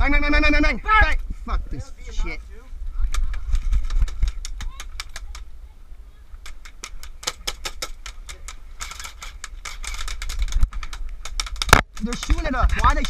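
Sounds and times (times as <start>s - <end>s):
airsoft gun clicking shots: 6.4s - 13.0s.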